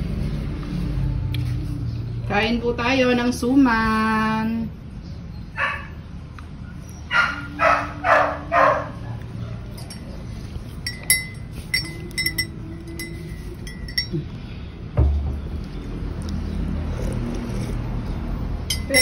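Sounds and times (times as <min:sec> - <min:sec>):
spoon clinking against ceramic mug: 0:10.8 - 0:14.3, 0:18.7 - 0:19.0.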